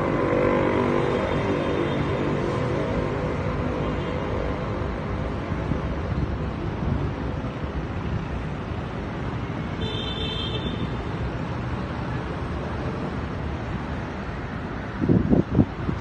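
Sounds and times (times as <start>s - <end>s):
road traffic noise: 0.0s - 16.0s
wind buffeting microphone: 14.8s - 16.0s.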